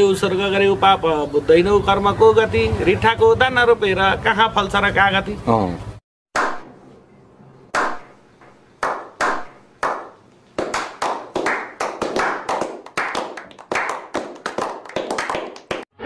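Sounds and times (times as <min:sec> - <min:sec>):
hands clapping: 0:06.4 - 0:06.7, 0:07.8 - 0:08.1, 0:08.8 - 0:15.9.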